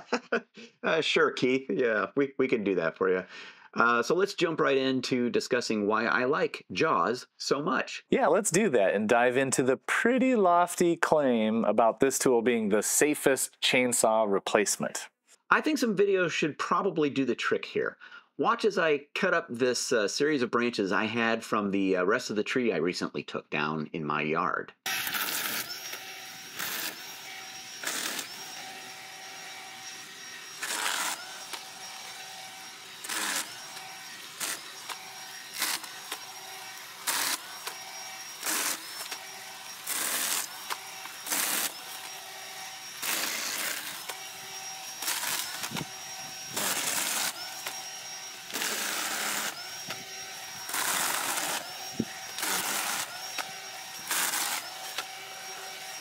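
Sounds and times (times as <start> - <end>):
chainsaw cutting through branches: 24.9 - 56.0
chainsaw motor whine: 24.9 - 56.0.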